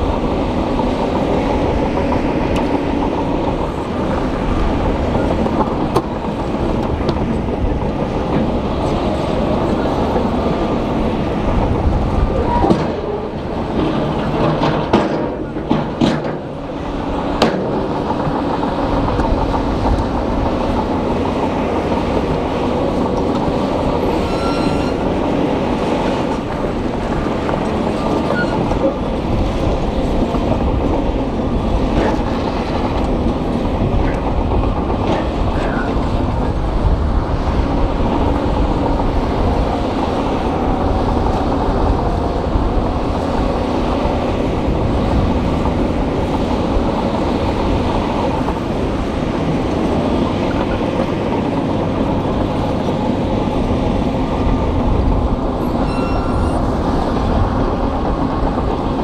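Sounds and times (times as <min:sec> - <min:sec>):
bulldozer diesel engine running: 0:00.0 - 0:59.0
steel tracks clanking and rattling: 0:00.0 - 0:59.0.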